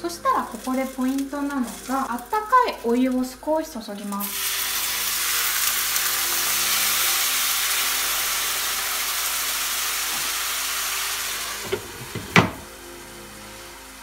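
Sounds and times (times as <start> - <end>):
water sizzling in hot pan: 0.0 - 14.0
glass lid clanking: 11.6 - 12.7.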